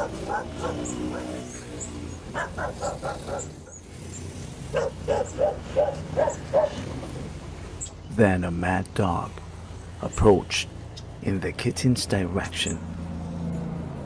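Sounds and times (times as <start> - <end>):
dog barking: 0.0 - 1.6, 2.3 - 3.8, 4.7 - 6.8
low traffic hum: 0.0 - 14.0.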